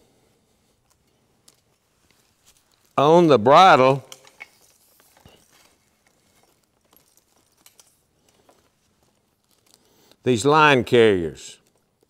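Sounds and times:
leather harness clicks and rustles: 0:00.8 - 0:03.0, 0:03.8 - 0:10.3, 0:11.6 - 0:12.0.

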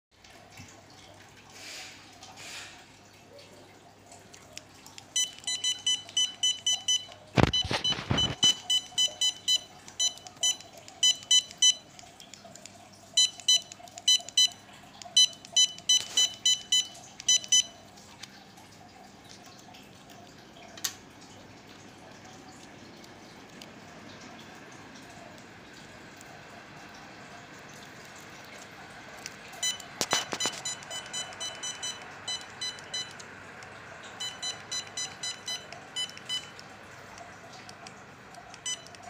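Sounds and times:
short high beeps: 0:05.2 - 0:11.8, 0:29.6 - 0:33.2.

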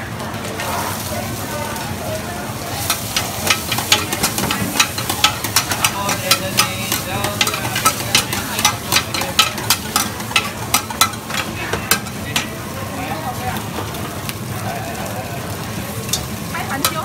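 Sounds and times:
frying sizzle: 0:00.0 - 0:17.0
metal spatulas scraping wok: 0:02.8 - 0:12.6.

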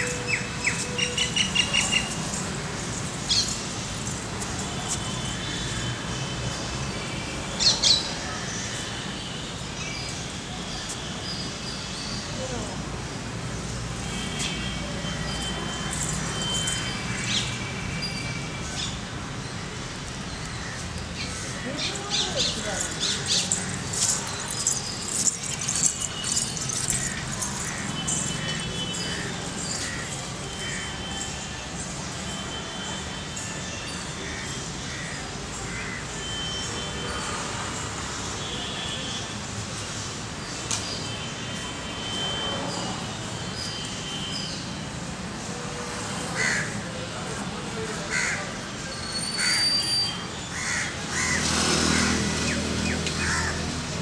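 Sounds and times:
distant traffic hum: 0:00.0 - 0:54.0
crows cawing: 0:46.4 - 0:46.8, 0:48.1 - 0:48.4, 0:50.5 - 0:52.2, 0:53.2 - 0:53.7.

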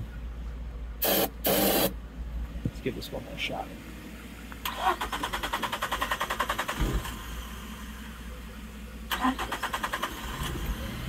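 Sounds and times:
engine starter cranking: 0:04.6 - 0:07.3, 0:09.1 - 0:10.8.

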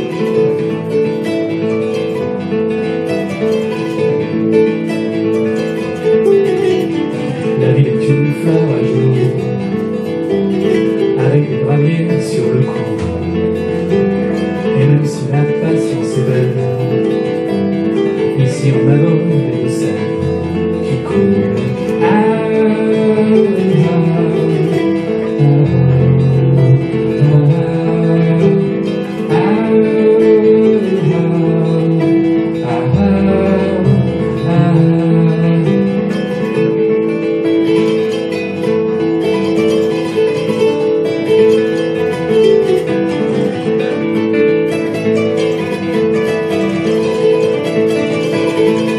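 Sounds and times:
acoustic guitar playing: 0:00.0 - 0:48.9
kora playing: 0:00.0 - 0:48.9
man singing: 0:05.8 - 0:38.3.

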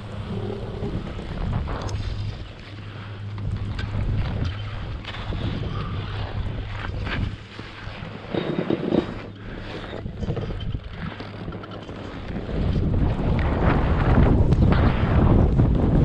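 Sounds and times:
wind on microphone: 0:00.0 - 0:16.0
skis swishing through snow: 0:01.3 - 0:09.9.

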